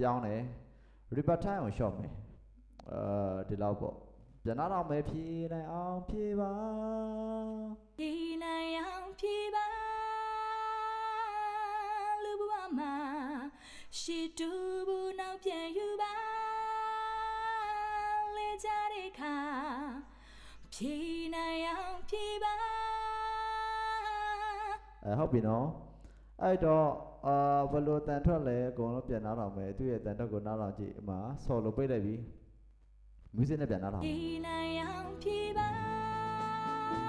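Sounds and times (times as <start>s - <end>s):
solo voice singing with reverb: 4.9s - 20.1s, 34.0s - 37.0s.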